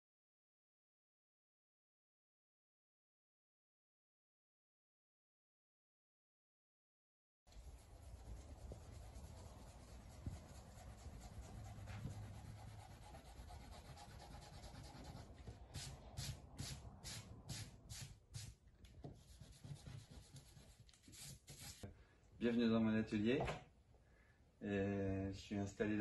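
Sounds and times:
drawing stick scribbling on paper: 7.5s - 18.0s, 19.2s - 21.8s.

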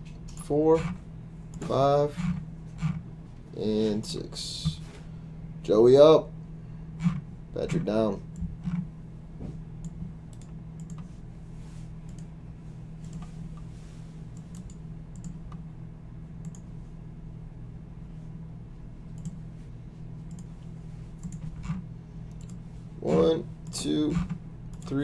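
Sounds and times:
steady low hum: 0.0s - 25.0s
computer mouse clicks: 9.8s - 11.1s, 12.1s - 12.3s, 14.4s - 15.6s, 16.4s - 16.6s, 19.2s - 19.4s, 20.3s - 20.5s, 21.2s - 22.6s.

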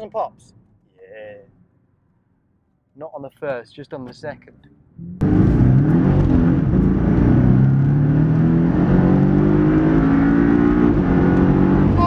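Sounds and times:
car engine accelerating hard: 5.0s - 12.0s.

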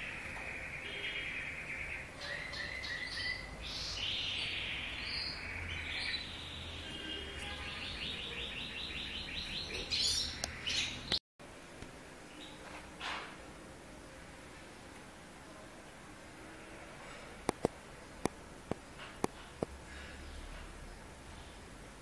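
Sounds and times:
canaries chirping: 0.0s - 11.2s.

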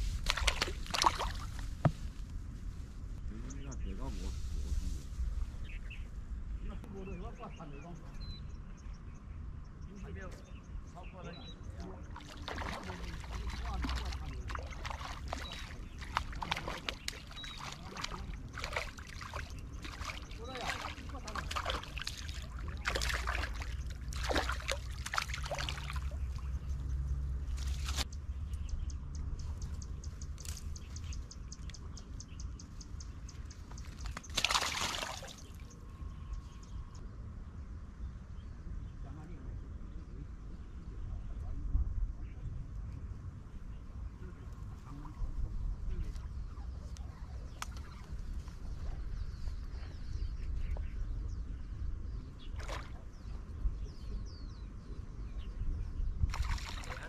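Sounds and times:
water splashing: 0.0s - 2.1s, 12.1s - 26.6s, 33.7s - 35.6s, 52.5s - 53.2s, 56.3s - 57.0s
small birds chirping: 3.2s - 57.0s.

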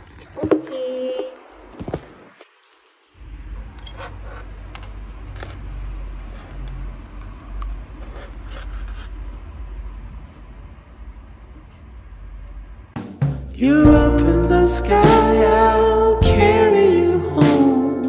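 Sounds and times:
steady low rumble: 13.6s - 18.0s.

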